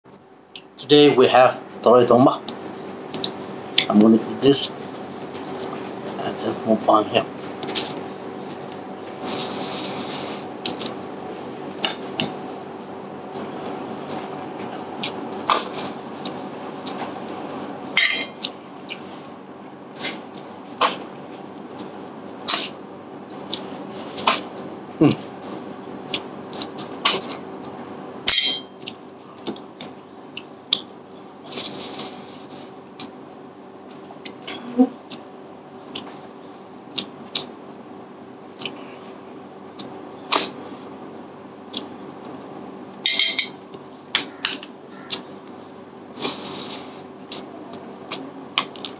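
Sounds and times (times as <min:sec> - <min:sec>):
wet chewing and sucking: 0:13.4 - 0:17.4, 0:36.9 - 0:37.6, 0:41.6 - 0:42.4
mouth chewing: 0:14.6 - 0:17.4, 0:28.8 - 0:33.2, 0:36.9 - 0:37.5, 0:41.6 - 0:42.4.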